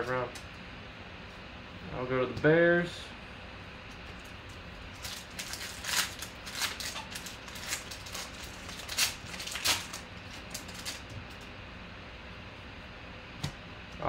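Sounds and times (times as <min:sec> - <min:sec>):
foil wrapper tearing and crinkling: 0:04.9 - 0:11.1.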